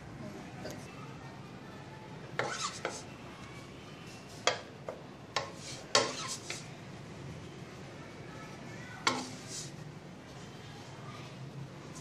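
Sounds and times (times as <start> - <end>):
spatula scraping a wok: 2.4 - 3.1, 5.4 - 6.7, 9.1 - 9.8.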